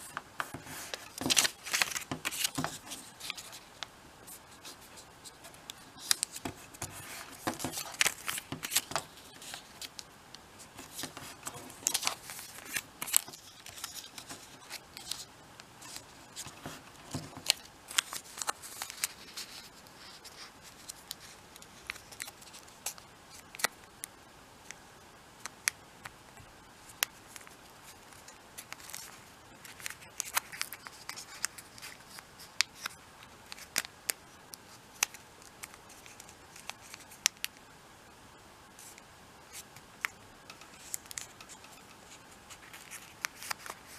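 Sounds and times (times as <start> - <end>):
paper rustling: 0.0 - 10.0, 10.6 - 23.7, 38.8 - 43.9
paper folding clicks and snaps: 0.4 - 3.9, 5.7 - 10.1, 10.8 - 15.2, 15.9 - 19.6, 20.8 - 24.1, 28.6 - 37.6, 42.5 - 43.9.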